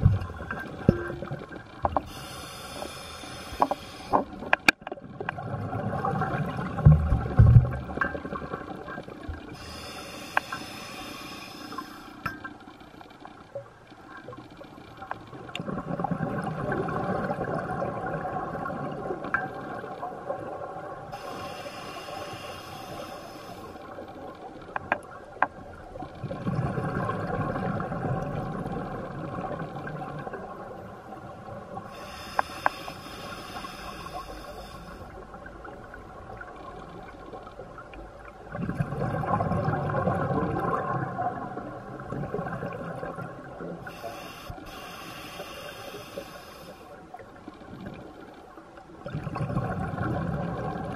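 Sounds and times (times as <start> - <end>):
scuba regulator hiss: 2.1 - 4.2, 9.6 - 12.2, 21.2 - 23.7, 31.9 - 35.1, 43.9 - 46.8
exhaled bubbles rushing: 38.5 - 43.3, 49.0 - 50.9.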